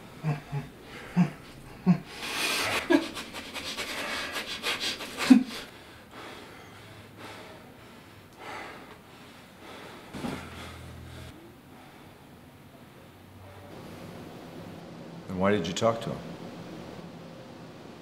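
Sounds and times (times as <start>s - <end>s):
heavy hissing breaths: 0.8s - 13.8s.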